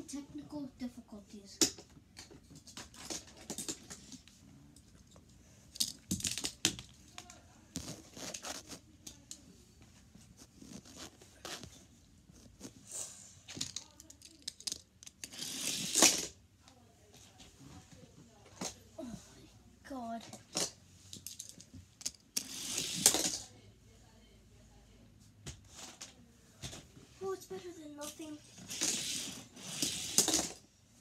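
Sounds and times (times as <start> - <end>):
plastic track pieces clicking: 21.2 - 23.4, 28.7 - 30.6.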